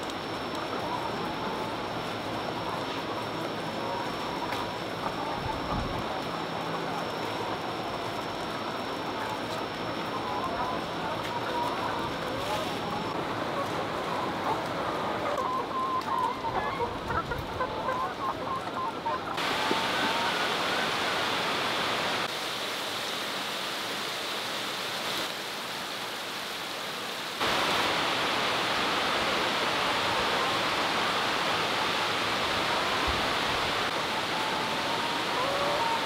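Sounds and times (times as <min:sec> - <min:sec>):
hens clucking: 0:00.4 - 0:20.9, 0:34.4 - 0:36.0.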